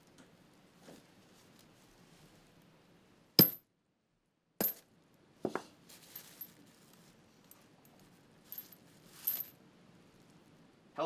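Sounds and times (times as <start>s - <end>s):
chain and padlock clinking: 8.5s - 9.5s.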